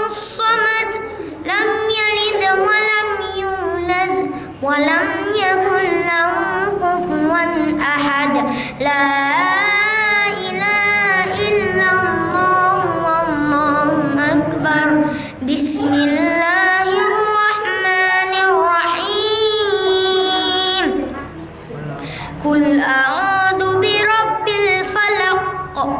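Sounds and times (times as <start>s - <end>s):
boy reciting melodically: 0.0s - 21.3s, 22.0s - 25.9s
boy breathing: 4.2s - 4.6s, 8.4s - 8.9s, 15.0s - 15.4s, 22.0s - 22.4s.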